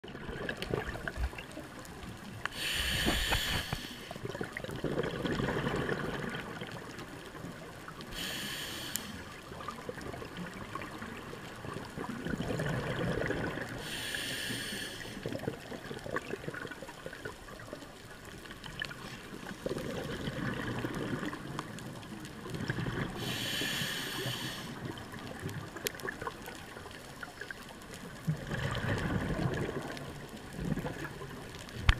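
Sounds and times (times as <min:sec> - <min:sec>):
exhaled air bubbling: 0:00.0 - 0:31.9
regulator breath hissing: 0:02.5 - 0:04.2, 0:08.1 - 0:09.3, 0:13.8 - 0:15.2, 0:23.2 - 0:24.8.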